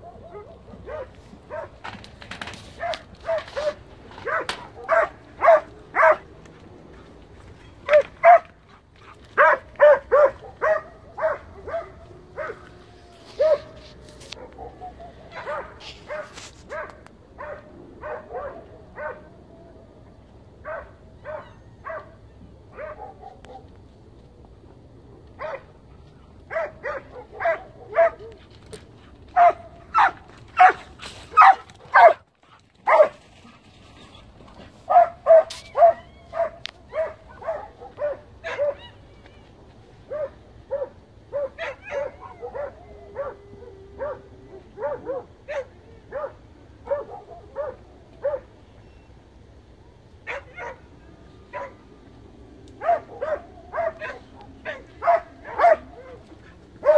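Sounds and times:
hound barking: 0:00.0 - 0:01.9, 0:02.8 - 0:06.3, 0:07.8 - 0:08.6, 0:09.4 - 0:19.3, 0:20.6 - 0:23.8, 0:25.4 - 0:25.8, 0:26.5 - 0:28.4, 0:29.3 - 0:33.2, 0:34.8 - 0:39.0, 0:40.1 - 0:48.6, 0:50.2 - 0:50.9, 0:51.5 - 0:51.8, 0:52.8 - 0:56.9.

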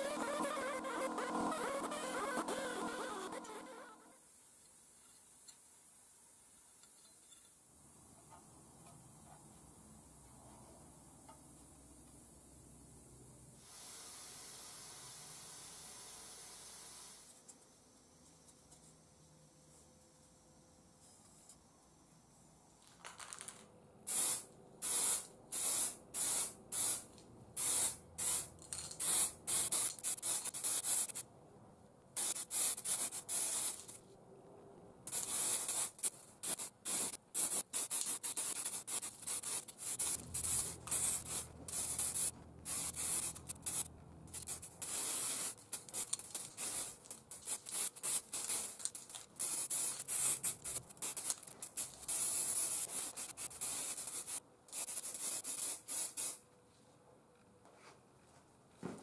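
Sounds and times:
spray paint can hissing: 0:00.0 - 0:03.8, 0:13.6 - 0:17.3, 0:24.1 - 0:31.2, 0:32.2 - 0:34.0, 0:35.1 - 0:56.4.

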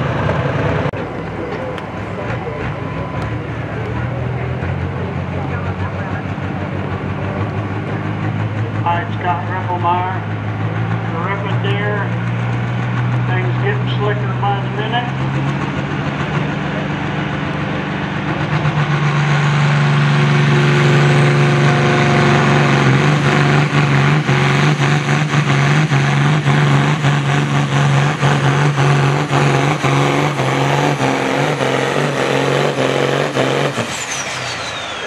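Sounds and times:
tractor diesel engine under load: 0:00.0 - 0:35.0
turbo whine: 0:28.2 - 0:35.0.

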